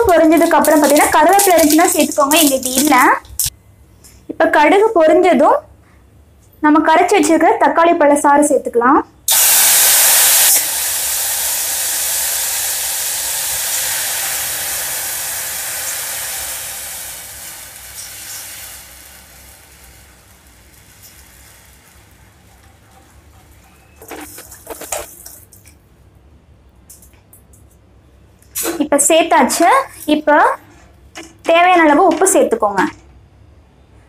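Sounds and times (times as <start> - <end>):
liquid sizzling in hot oil: 0.0 - 3.5, 9.3 - 25.8.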